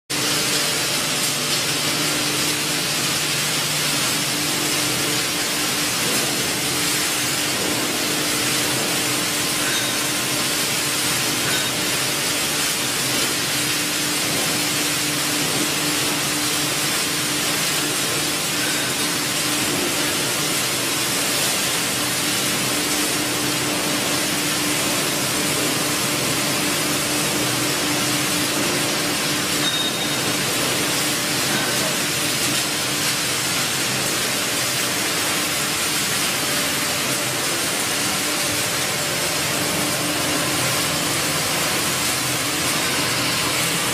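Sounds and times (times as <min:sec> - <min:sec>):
machinery hum: 0:00.1 - 0:43.9.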